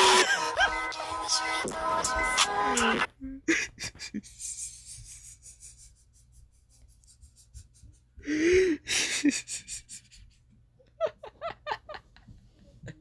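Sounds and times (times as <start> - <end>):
person laughing hard: 0.0 - 0.9, 3.4 - 4.5, 7.5 - 13.0.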